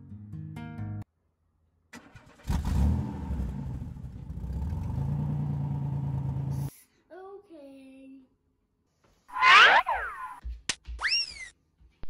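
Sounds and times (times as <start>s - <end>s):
car engine starting and running: 1.9s - 6.7s.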